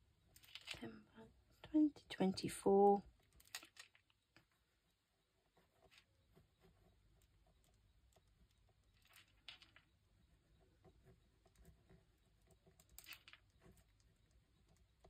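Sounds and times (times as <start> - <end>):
pen scratching on paper: 10.5 - 12.7.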